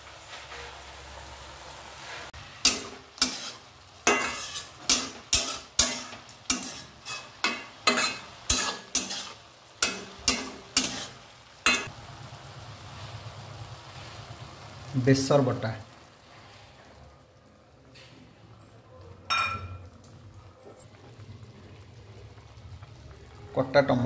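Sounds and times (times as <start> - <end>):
faint sizzle: 0.0 - 24.0
metal spatula scraping a pan: 2.0 - 11.9.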